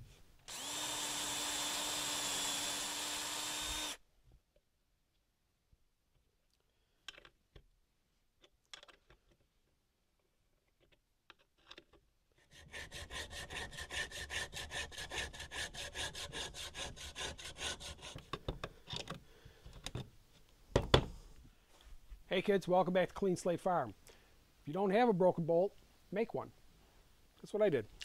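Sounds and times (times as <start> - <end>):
hacksaw sawing bolt: 0.5 - 4.0.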